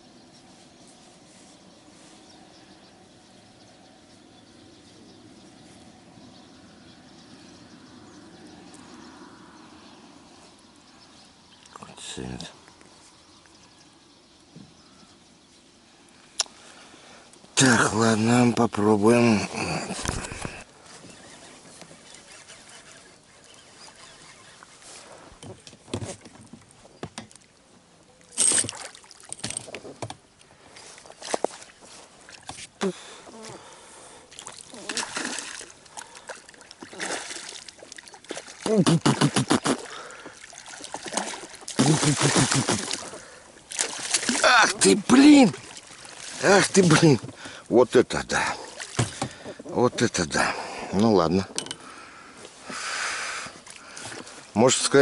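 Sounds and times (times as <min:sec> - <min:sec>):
knocks and clicks of fishing gear: 0:25.4 - 0:27.4, 0:28.4 - 0:30.2, 0:48.9 - 0:49.7, 0:51.5 - 0:51.9.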